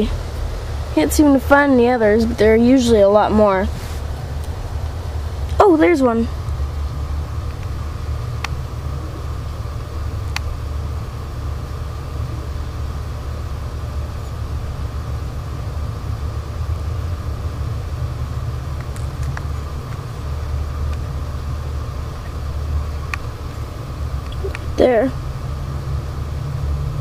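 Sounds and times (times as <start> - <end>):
constant hum: 0.0 - 27.0
low rumble: 0.0 - 27.0.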